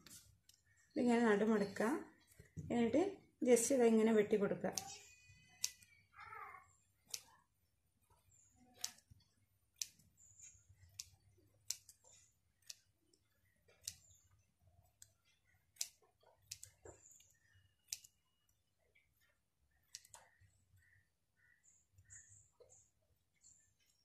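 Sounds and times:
scissors snipping paper: 4.7s - 6.0s, 7.0s - 14.2s, 14.9s - 18.5s, 19.1s - 21.0s.

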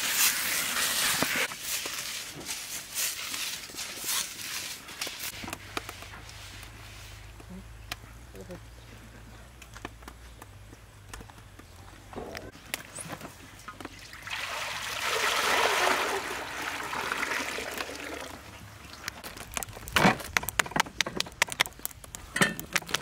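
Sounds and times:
water pouring into a metal wok: 14.0s - 18.5s.

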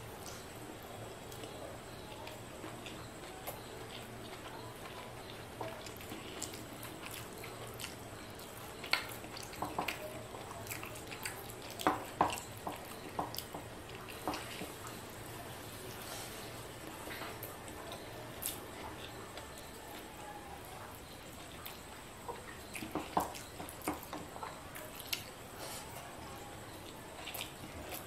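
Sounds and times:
chewing: 0.0s - 28.0s.

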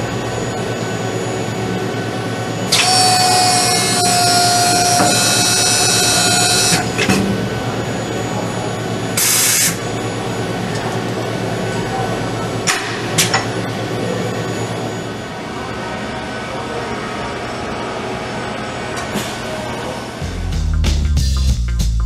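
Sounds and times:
reamer whining: 0.0s - 12.7s
workshop machinery hum: 0.0s - 22.0s
machine stopping knock: 2.7s - 7.6s.

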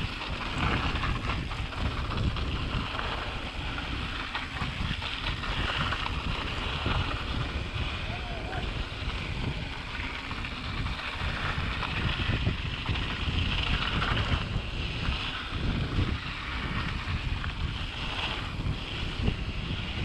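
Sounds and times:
tyres hissing on loose dirt: 0.0s - 20.0s
wind on microphone: 0.0s - 20.0s.

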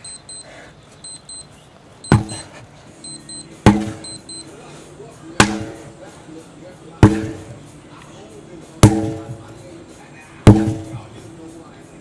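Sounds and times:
sledgehammer blows with ring: 2.1s - 2.5s, 3.7s - 4.2s, 5.4s - 5.9s, 7.0s - 7.6s, 8.8s - 9.4s, 10.5s - 11.0s.

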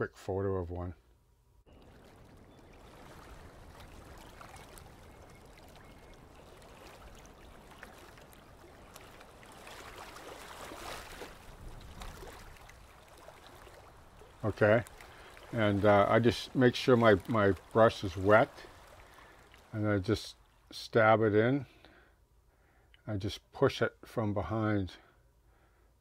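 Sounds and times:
shallow water lapping over sand: 1.7s - 20.8s.

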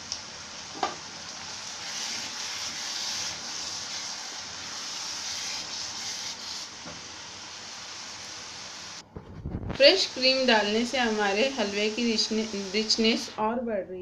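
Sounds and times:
carrots sizzling in a pan: 0.0s - 9.0s, 9.8s - 13.4s
spatula stirring and scraping: 1.6s - 6.8s.

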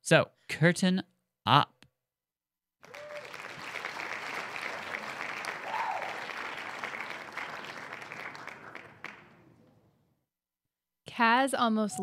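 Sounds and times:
audience applause: 2.8s - 9.5s.

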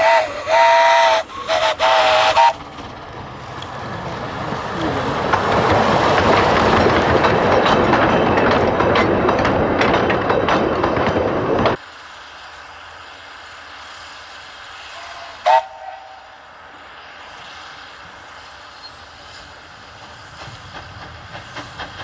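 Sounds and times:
train whistle toot: 0.0s - 2.6s, 14.9s - 16.4s
train rumbling: 0.0s - 22.0s
wheels clicking over rails: 1.4s - 11.8s, 19.3s - 22.0s.

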